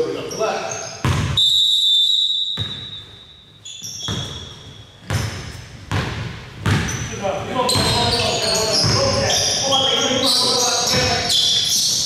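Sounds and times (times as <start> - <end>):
basketball bouncing on court floor: 1.0 - 1.4, 2.6 - 3.2, 3.8 - 9.5, 10.4 - 12.0
referee's whistle blast: 1.2 - 4.8.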